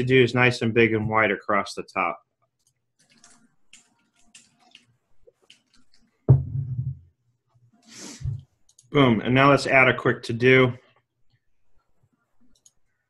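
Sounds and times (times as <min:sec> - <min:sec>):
faint clicks: 0:08.6 - 0:08.9, 0:12.4 - 0:12.9.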